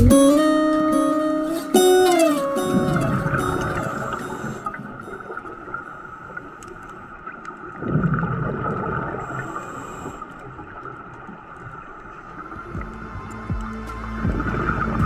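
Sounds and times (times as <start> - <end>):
diver exhaling bubbles: 7.8 - 10.2
underwater hiss: 7.8 - 10.9.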